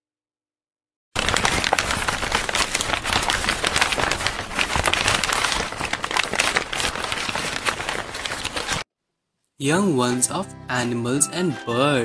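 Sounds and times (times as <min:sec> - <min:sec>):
dense crackling pops and clicks: 0:01.2 - 0:08.8.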